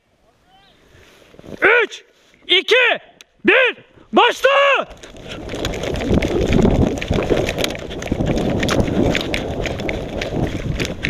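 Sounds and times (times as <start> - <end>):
footsteps running through snow: 4.8 - 11.0
wind rumbling on microphone: 4.8 - 11.0.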